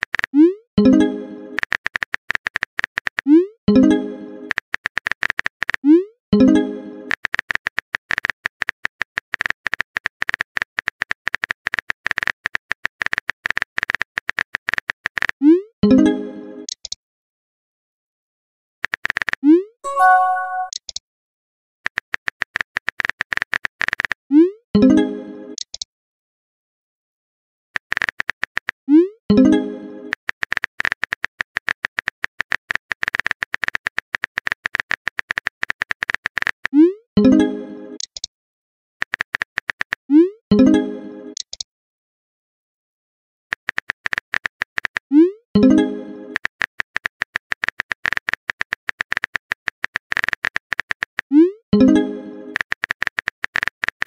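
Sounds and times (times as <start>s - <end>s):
notification chime: 19.9s - 20.8s
phone keyboard clicks: 30.2s - 36.8s, 39.0s - 40.0s, 43.5s - 45.0s, 46.4s - 51.3s, 52.5s - 54.0s.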